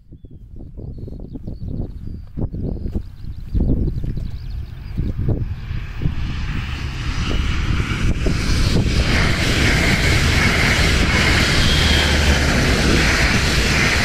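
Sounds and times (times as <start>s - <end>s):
diesel locomotive engine drone: 1.2s - 14.0s
wheels hissing on rails: 4.6s - 14.0s.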